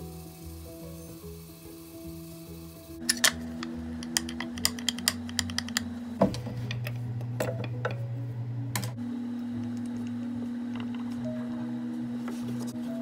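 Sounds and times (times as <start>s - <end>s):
background music with held notes: 0.0s - 13.0s.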